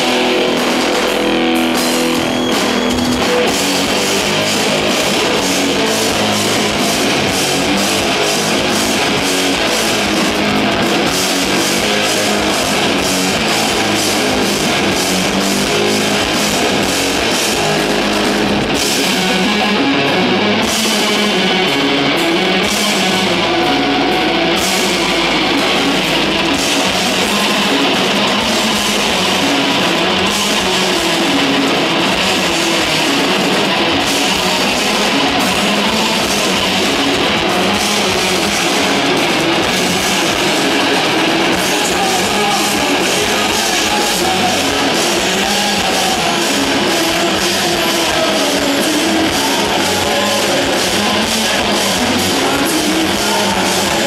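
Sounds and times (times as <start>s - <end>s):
live rock band playing: 0.0s - 54.0s.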